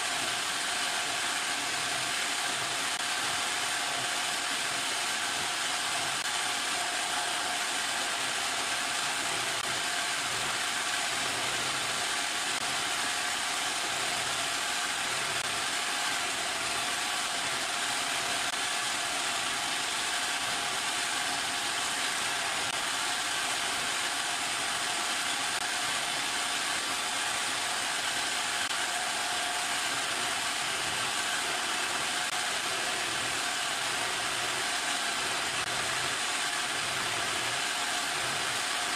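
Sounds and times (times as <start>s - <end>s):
motor hum and whine: 0.0s - 38.9s.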